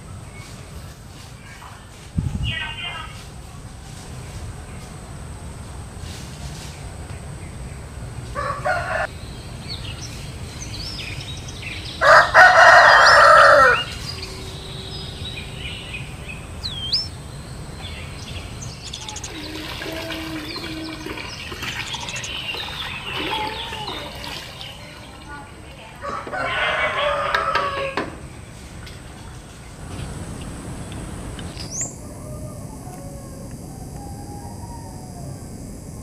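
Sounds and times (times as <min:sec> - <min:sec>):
rooster crowing: 0:08.3 - 0:09.1, 0:11.8 - 0:15.8, 0:25.8 - 0:28.2, 0:31.8 - 0:36.0
small bird chirps: 0:13.1 - 0:17.2, 0:17.8 - 0:24.0, 0:31.5 - 0:35.4.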